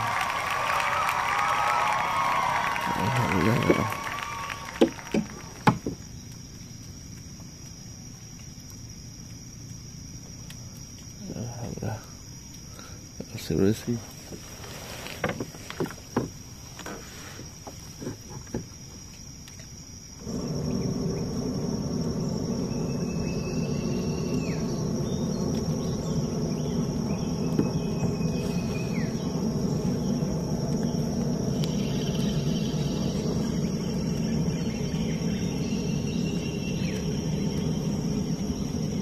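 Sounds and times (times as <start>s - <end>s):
whistling tones dropping in pitch: 0.0s - 5.7s, 22.2s - 39.0s
insects chirring: 0.0s - 39.0s
low rumble: 20.2s - 39.0s.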